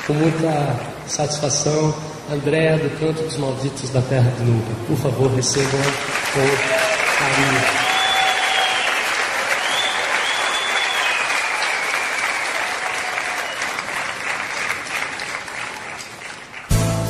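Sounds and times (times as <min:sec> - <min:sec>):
audience applauding: 0:00.0 - 0:01.0, 0:05.2 - 0:16.9
cheers and whistles: 0:06.6 - 0:14.1.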